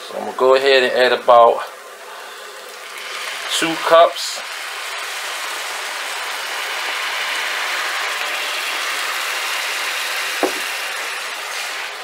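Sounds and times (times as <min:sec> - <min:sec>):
stock sizzling and bubbling in pan: 0:00.4 - 0:12.0
sharp knock: 0:10.4 - 0:10.7.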